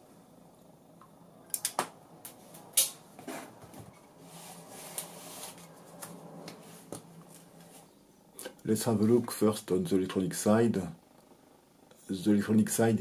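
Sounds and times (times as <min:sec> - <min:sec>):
rubbing and rustling: 0:03.2 - 0:07.9.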